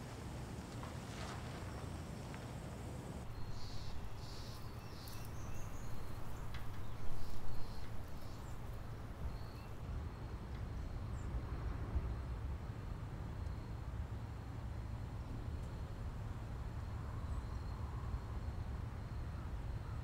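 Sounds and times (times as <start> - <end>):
bird chirps: 3.3 - 9.8.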